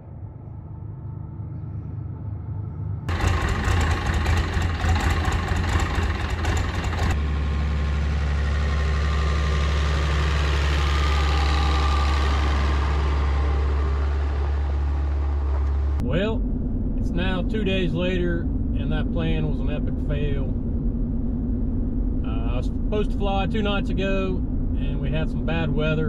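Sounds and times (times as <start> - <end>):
tractor engine running: 3.1 - 16.0.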